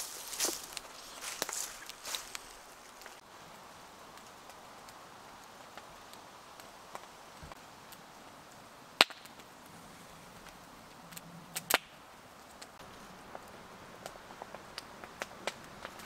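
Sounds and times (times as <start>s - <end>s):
campfire crackling: 0.0s - 16.0s
loud fire pops: 9.0s - 9.5s, 11.6s - 12.0s.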